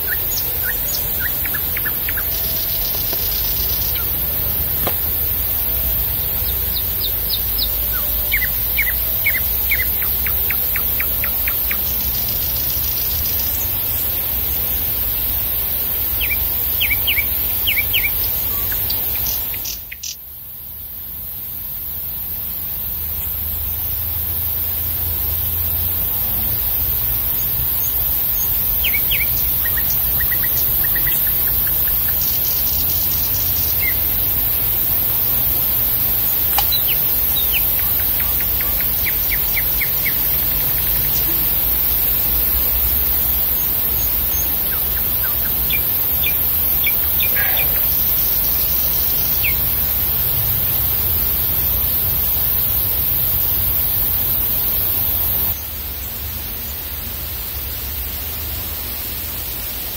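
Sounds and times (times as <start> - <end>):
small birds chirping and trilling: 0.0 - 20.2, 26.1 - 52.8
steady high hiss: 0.0 - 59.9.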